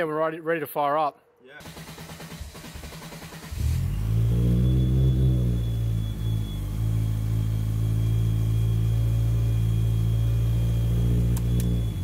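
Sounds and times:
car engine idling: 1.6 - 12.0
sharp clicks: 11.3 - 11.8.

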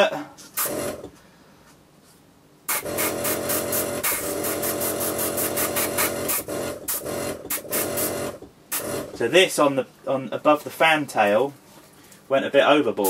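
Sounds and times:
steady hum: 0.0 - 13.0
airbrush spraying hiss: 2.7 - 8.9.

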